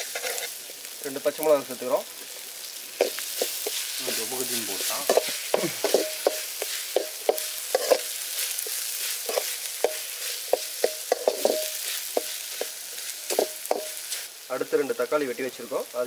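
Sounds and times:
food sizzling in hot oil: 0:00.0 - 0:16.0
ladle clanking against pan: 0:09.3 - 0:12.7.

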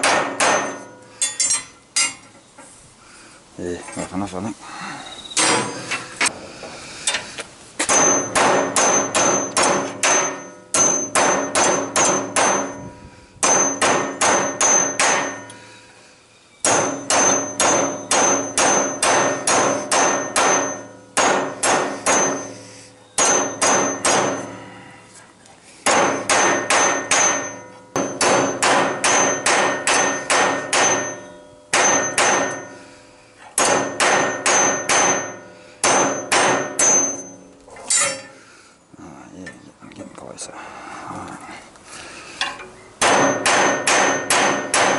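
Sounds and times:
hammer striking steel rod: 0:00.0 - 0:02.2, 0:07.8 - 0:12.8, 0:13.4 - 0:15.6, 0:16.6 - 0:22.6, 0:23.2 - 0:24.6, 0:25.8 - 0:32.8, 0:33.6 - 0:38.4, 0:42.4 - 0:44.9
steel ringing: 0:16.6 - 0:24.8, 0:26.0 - 0:32.9, 0:33.6 - 0:38.4.

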